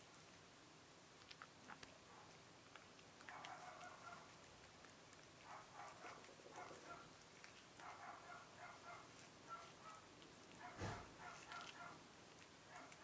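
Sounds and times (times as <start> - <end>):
small cat vocal sounds: 1.2 - 7.8
cat chewing clicks: 1.2 - 7.9, 9.0 - 13.0.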